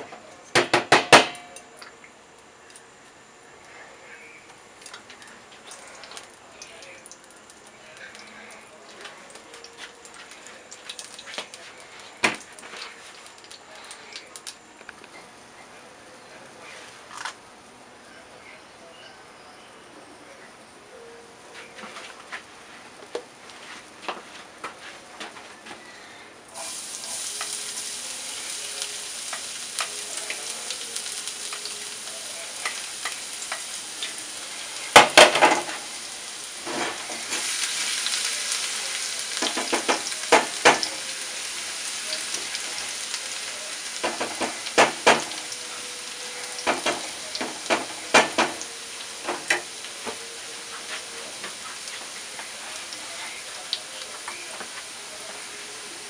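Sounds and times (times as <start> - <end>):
garlic sizzling in hot oil: 9.2 - 14.7, 26.5 - 56.0.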